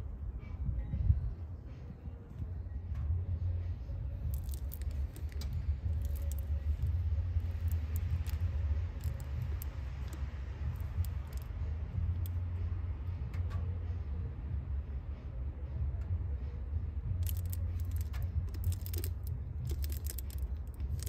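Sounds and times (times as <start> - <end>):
steady low rumble: 0.0 - 21.0
oil filter clicking and rattling: 4.2 - 12.4, 17.2 - 21.0.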